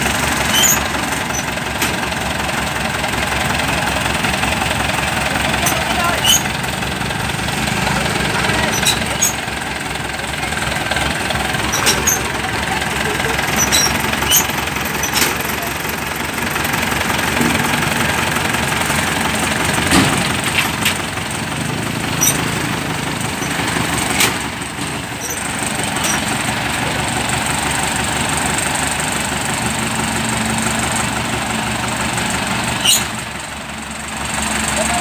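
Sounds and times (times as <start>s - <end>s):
diesel engine running: 0.0s - 35.0s
sharp metallic knocks: 11.6s - 12.3s.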